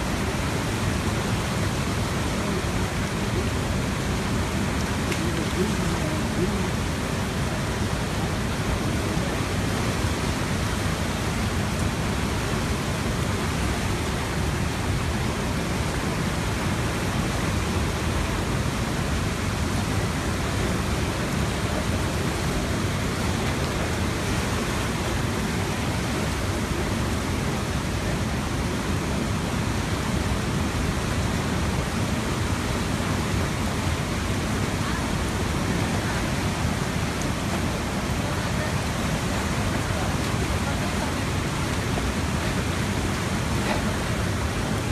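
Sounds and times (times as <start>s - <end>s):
floodwater rushing: 0.0s - 44.9s.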